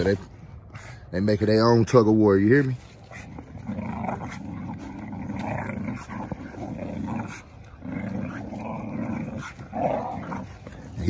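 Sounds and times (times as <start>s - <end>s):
dogs growling in play: 2.8s - 11.0s.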